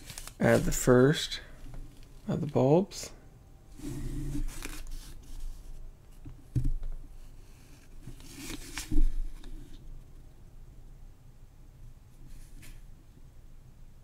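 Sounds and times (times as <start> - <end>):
paper card rustling: 0.0 - 2.6, 4.3 - 5.7, 7.6 - 9.8.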